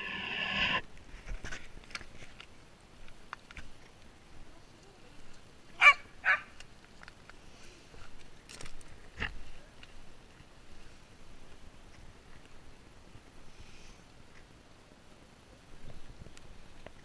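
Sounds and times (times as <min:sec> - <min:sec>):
dog barking: 0:05.8 - 0:06.5.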